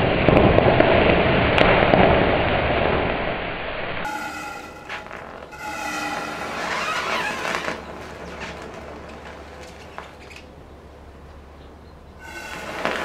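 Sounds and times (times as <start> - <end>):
crackles and low hiss: 0.0 - 13.0
short whistling tone: 4.1 - 8.0.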